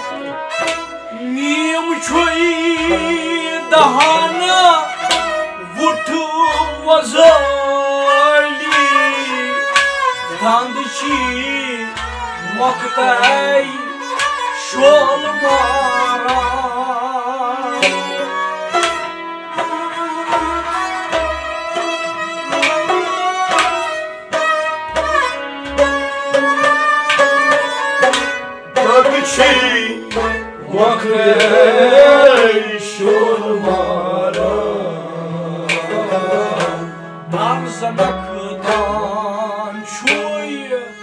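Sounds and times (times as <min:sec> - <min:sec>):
plucked string melody: 0:00.0 - 0:41.0
person singing: 0:01.1 - 0:18.6, 0:28.7 - 0:41.0.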